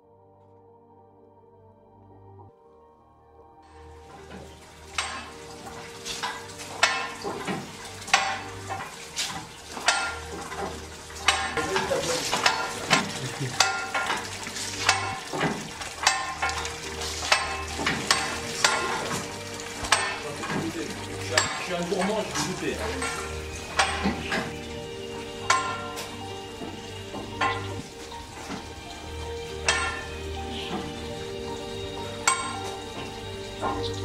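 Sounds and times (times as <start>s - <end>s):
juice streaming and splashing: 3.8s - 34.0s
wine press ratchet clicking: 4.9s - 24.6s.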